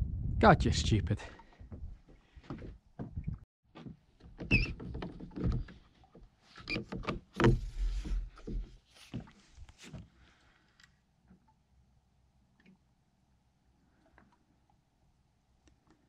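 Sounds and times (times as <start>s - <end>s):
fishing rod knocks and clunks: 2.5s - 9.3s.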